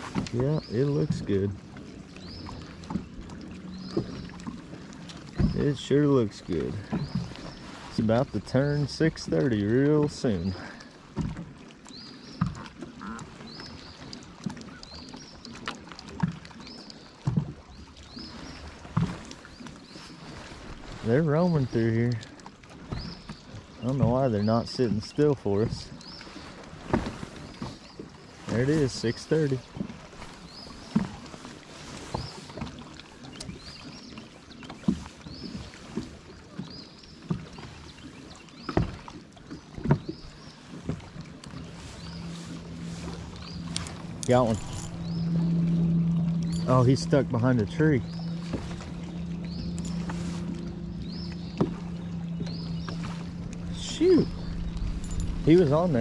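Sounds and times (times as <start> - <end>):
waves lapping against boat hull: 0.0 - 56.0.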